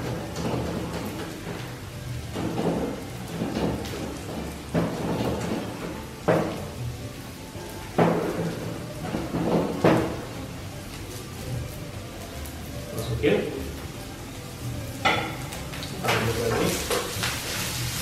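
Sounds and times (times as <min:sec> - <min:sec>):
onions frying in oil: 0:00.0 - 0:18.0.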